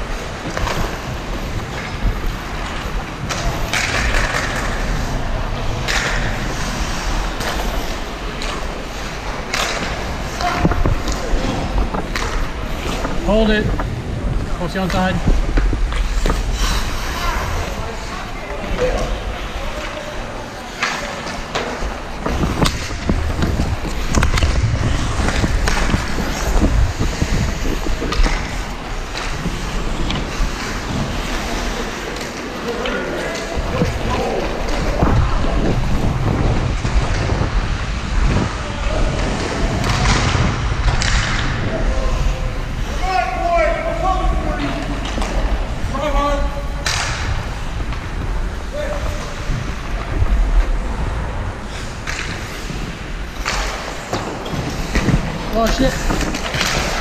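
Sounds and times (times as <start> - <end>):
hockey sticks and puck clacking: 0.0 - 57.0
skate blades scraping on ice: 0.0 - 57.0
low rumble: 33.5 - 43.0.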